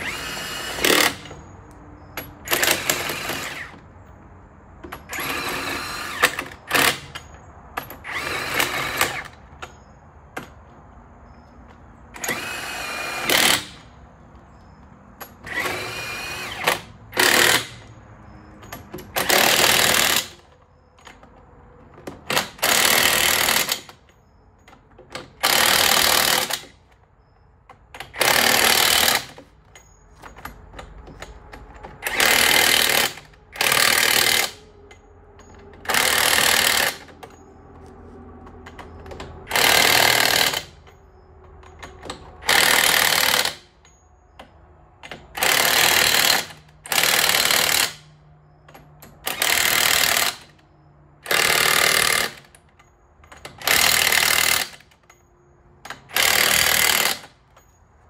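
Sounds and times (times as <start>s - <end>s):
impact wrench hammering: 12.2s - 13.9s, 38.7s - 41.0s.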